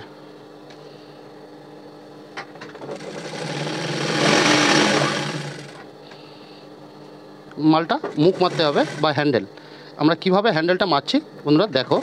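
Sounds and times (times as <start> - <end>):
sewing machine stitching: 2.8 - 5.8, 8.1 - 9.2.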